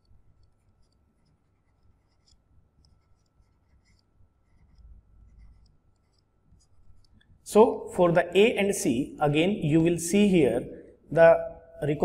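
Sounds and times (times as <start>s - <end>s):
stylus scratching on tablet screen: 0.0s - 7.5s.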